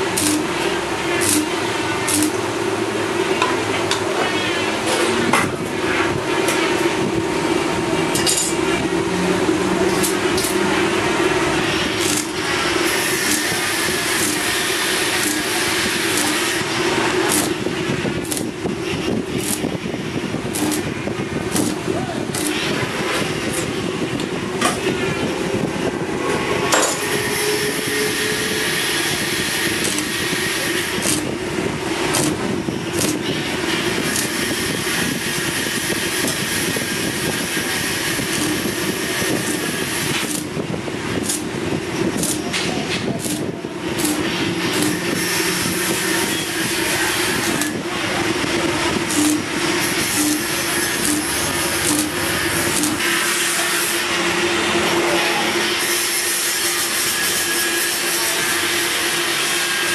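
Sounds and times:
welding arc sharp pops: 0.0 - 2.5, 9.9 - 10.6, 11.6 - 24.9, 28.9 - 47.9, 49.0 - 53.4
welding arc crackling: 0.0 - 4.0, 5.7 - 25.9, 26.7 - 54.2.

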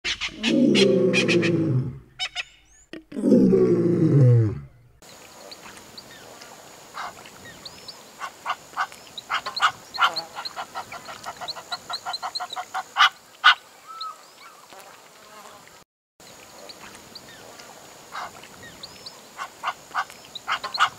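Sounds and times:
deep roaring animal calls: 0.2 - 2.2, 3.1 - 4.8
bird chirps: 2.1 - 3.0
cormorant clicking cackling call: 8.2 - 14.2, 19.4 - 20.9.

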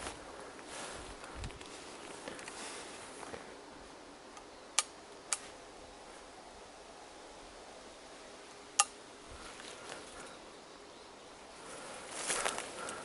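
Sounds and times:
faint steady hiss: 0.0 - 13.0
sharp clicks: 4.3 - 5.5.

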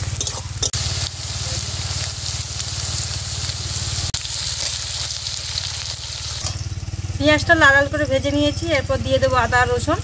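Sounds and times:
onions sizzling in hot oil: 0.0 - 7.4.

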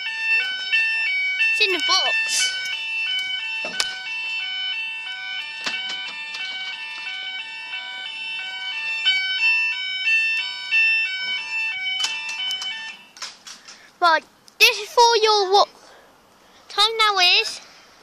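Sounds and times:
level crossing warning alarms: 0.0 - 13.3.

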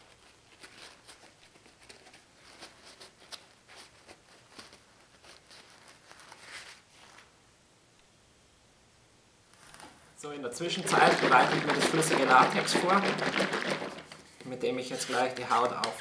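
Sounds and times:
paper towel rustling and patting: 9.7 - 16.0.

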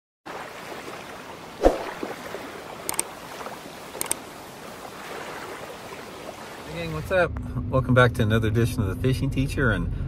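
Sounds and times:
water lapping: 0.3 - 7.1
splash-like thump: 1.6 - 2.4
sharp clicks: 2.9 - 3.1, 4.0 - 4.2.

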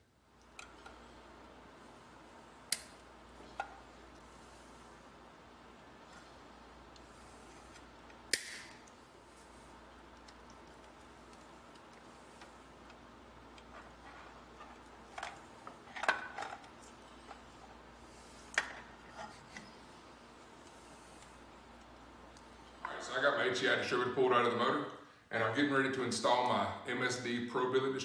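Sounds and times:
faint room tone: 0.0 - 28.0
sharp click: 8.3 - 8.9.

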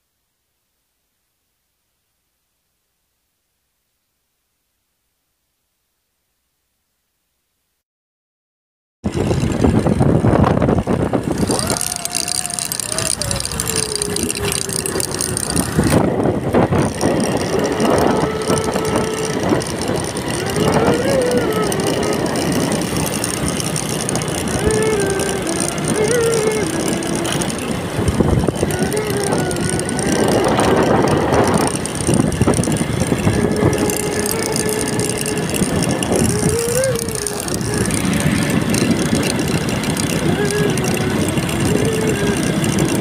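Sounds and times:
motorcycle engine: 9.0 - 43.0
wind buffeting microphone: 9.1 - 43.0
steady hum: 9.7 - 43.0.

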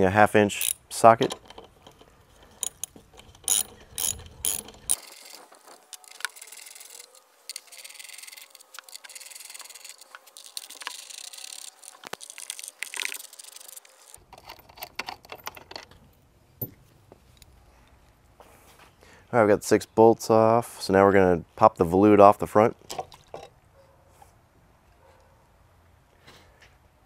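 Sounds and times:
hand ratchet clicking: 0.6 - 15.4
metal clicks: 0.6 - 16.0.

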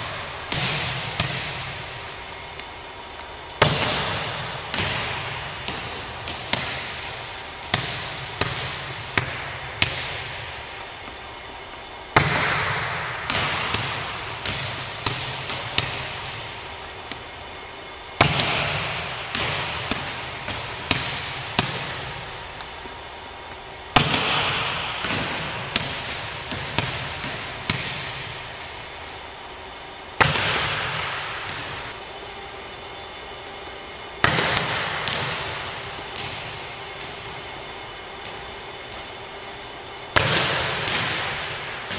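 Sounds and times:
volleyball being hit: 0.0 - 2.5, 3.6 - 10.7, 12.1 - 17.4, 18.1 - 22.8, 23.9 - 28.9, 30.2 - 32.0, 34.1 - 39.5, 40.1 - 41.9
ball bouncing on wooden floor: 0.5 - 2.7, 3.6 - 11.2, 12.2 - 16.5, 30.2 - 32.1, 34.2 - 37.6.

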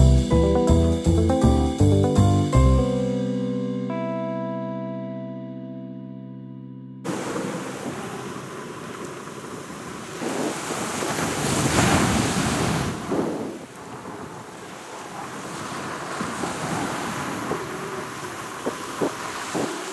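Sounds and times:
waves breaking on a beach: 7.1 - 19.9
wind on the microphone: 7.1 - 19.9.

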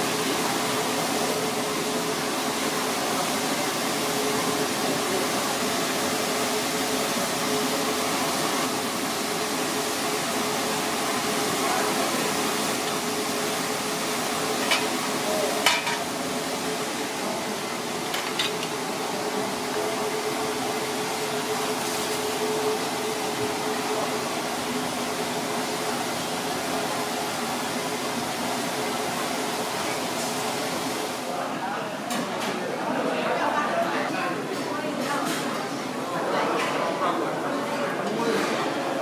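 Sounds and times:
hot oil sizzling: 0.0 - 31.1.

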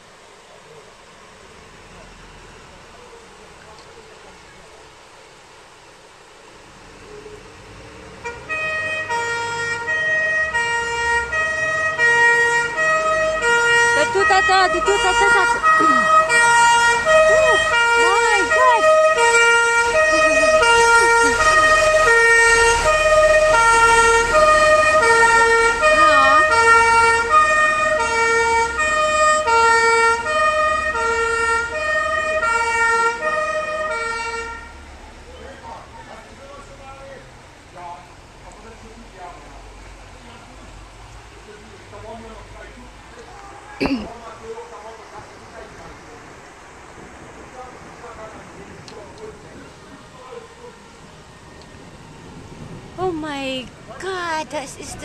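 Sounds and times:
heavy rain: 0.0 - 55.0
rushing floodwater: 0.0 - 55.0
two-tone siren: 8.5 - 34.9.

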